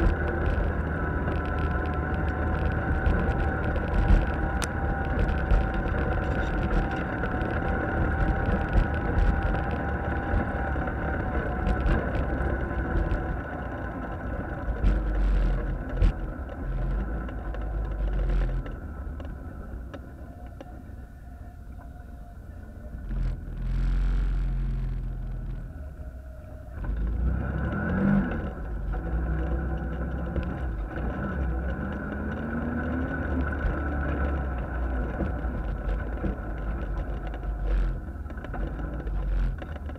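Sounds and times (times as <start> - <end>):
off-road vehicle engine: 0.0 - 39.9.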